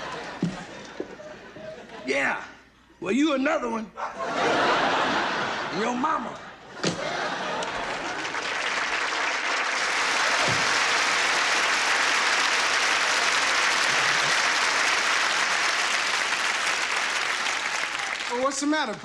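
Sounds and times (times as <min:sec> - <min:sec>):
audience applauding: 0:07.2 - 0:19.0.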